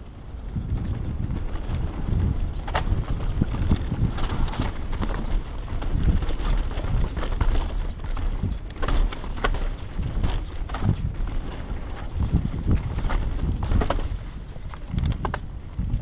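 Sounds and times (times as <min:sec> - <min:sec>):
tyres rolling over dirt: 0:00.0 - 0:15.6
wind buffeting microphone: 0:00.0 - 0:16.0
bike clacking over bumps: 0:00.1 - 0:16.0.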